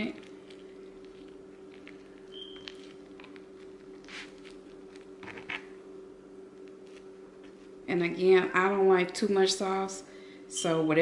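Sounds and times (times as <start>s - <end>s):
hands rolling a tortilla wrap: 0.0s - 5.7s, 6.5s - 7.8s
steady low hum: 0.0s - 11.0s.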